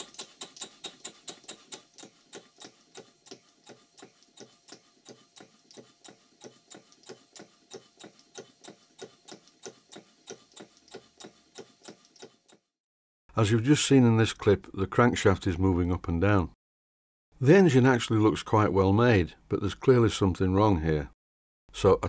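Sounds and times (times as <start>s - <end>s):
steam engine rapid ticking: 0.0s - 12.7s.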